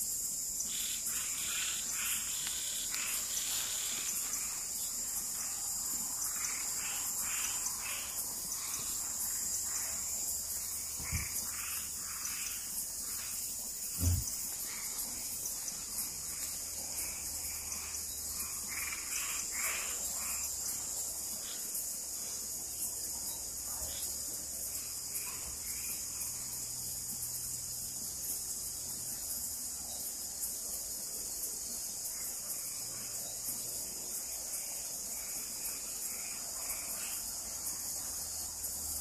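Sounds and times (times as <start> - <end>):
crickets and night insects chorus: 0.0 - 39.0
frog calls: 0.6 - 21.6.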